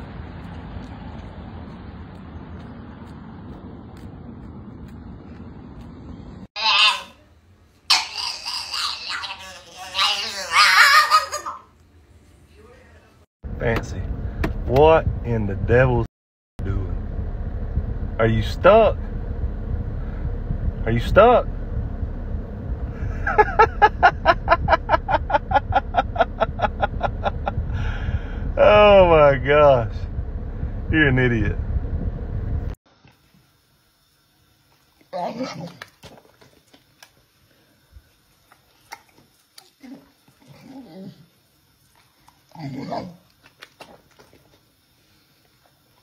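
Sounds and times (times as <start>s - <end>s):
person laughing: 10.7s - 11.7s, 22.9s - 29.0s.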